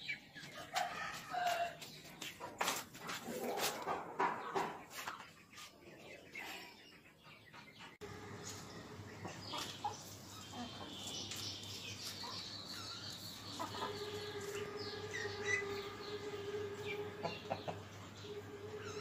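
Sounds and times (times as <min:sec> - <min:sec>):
chickens clucking: 0:00.0 - 0:19.0
steady hum: 0:08.0 - 0:11.0, 0:13.2 - 0:19.0
high chirping bird calls: 0:08.4 - 0:19.0.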